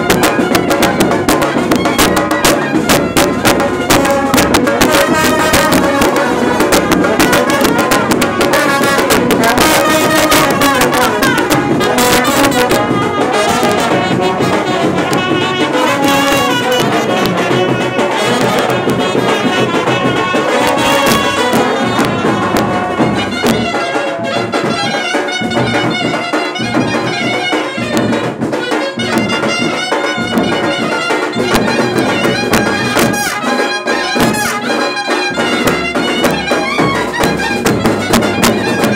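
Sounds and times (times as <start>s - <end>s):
brass band playing: 0.0s - 38.9s
drum beats: 0.0s - 38.9s.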